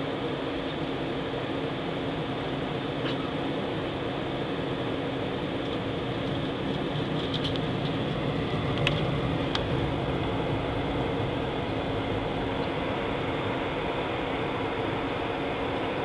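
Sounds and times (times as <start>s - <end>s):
jet engines humming: 0.0s - 16.0s
cabin air rushing: 5.9s - 16.0s.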